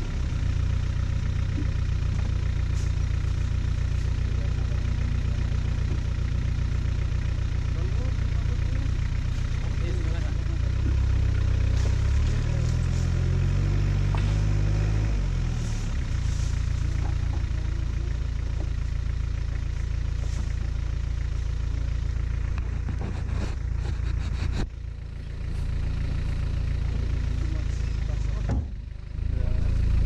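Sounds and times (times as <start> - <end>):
vehicle engine running: 0.0 - 30.0
vehicle clicks and knocks: 16.8 - 19.7, 28.2 - 29.0.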